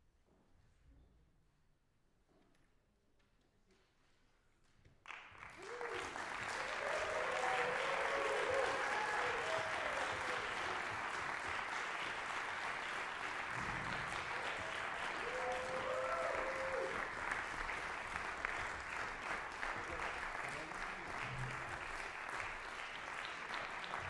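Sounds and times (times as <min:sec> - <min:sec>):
audience applauding: 0:05.1 - 0:24.0.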